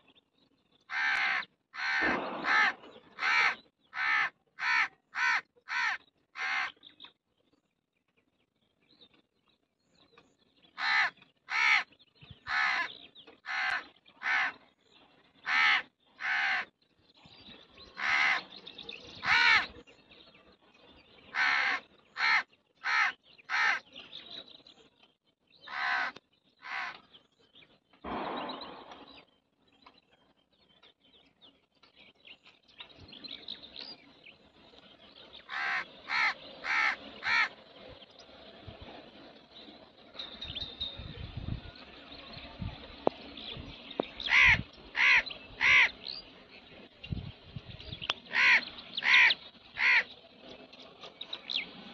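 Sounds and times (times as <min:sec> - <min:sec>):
crow cawing: 0:00.9 - 0:06.8, 0:10.8 - 0:11.9, 0:12.5 - 0:14.6, 0:15.4 - 0:16.7, 0:18.0 - 0:18.4, 0:19.2 - 0:19.7, 0:21.3 - 0:23.8, 0:25.7 - 0:27.0, 0:35.5 - 0:37.5, 0:44.3 - 0:45.9, 0:48.3 - 0:50.1
crow rasping call: 0:00.9 - 0:06.8, 0:10.8 - 0:11.9, 0:12.5 - 0:14.6, 0:15.4 - 0:16.7, 0:18.0 - 0:18.5, 0:19.2 - 0:19.7, 0:21.3 - 0:23.8, 0:25.7 - 0:27.0, 0:35.5 - 0:37.6, 0:44.3 - 0:46.0, 0:48.3 - 0:50.1.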